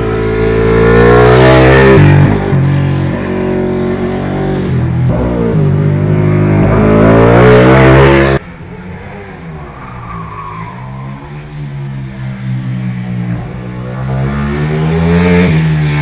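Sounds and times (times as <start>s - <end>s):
motorcycle engine revving: 0.0s - 8.4s, 11.9s - 16.0s.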